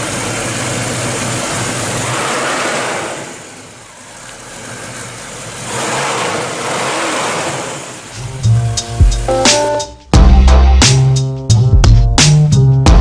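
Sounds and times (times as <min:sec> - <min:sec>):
car engine revving: 0:00.0 - 0:09.3.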